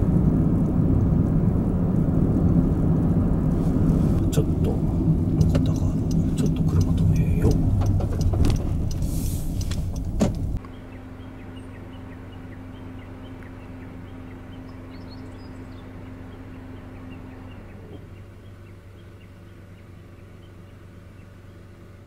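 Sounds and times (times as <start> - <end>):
car cabin noise: 0.0 - 10.8
sharp clicks: 5.3 - 10.7
faint ticks: 5.4 - 10.4.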